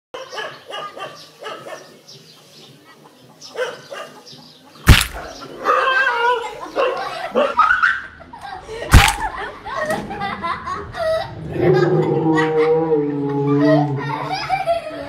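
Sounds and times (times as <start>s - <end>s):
dog barking: 0.2s - 2.0s, 3.5s - 4.3s, 6.8s - 7.6s
loud sharp smack: 4.9s - 5.3s, 8.9s - 9.4s.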